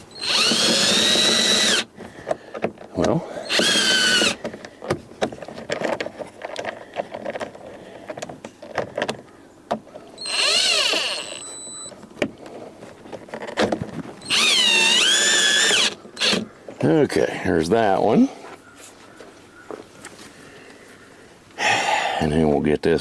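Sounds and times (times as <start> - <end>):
power drill motor whine: 0.0 - 1.9, 3.4 - 4.4, 10.2 - 12.0, 14.2 - 16.4
light clicks and handling noise: 4.4 - 10.1.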